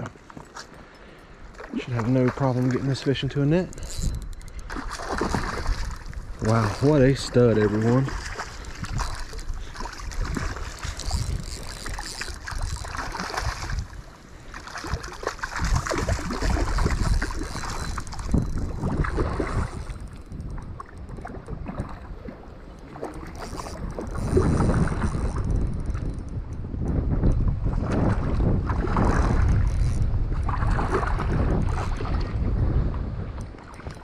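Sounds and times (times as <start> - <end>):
water sloshing and splashing: 1.5 - 26.2, 27.6 - 34.0
wind on microphone: 1.8 - 34.0.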